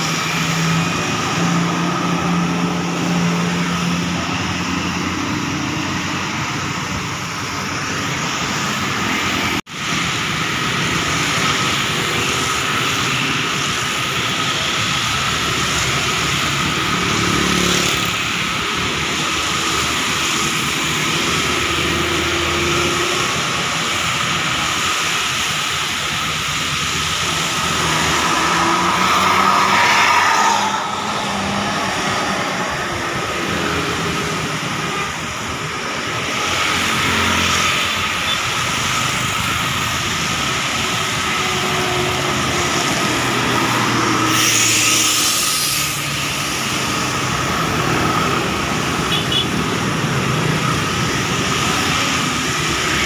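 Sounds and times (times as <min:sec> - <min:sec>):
tyres hissing on wet road: 0:00.0 - 0:53.0
vehicles passing: 0:00.0 - 0:53.0
coach engine hum: 0:25.6 - 0:36.3.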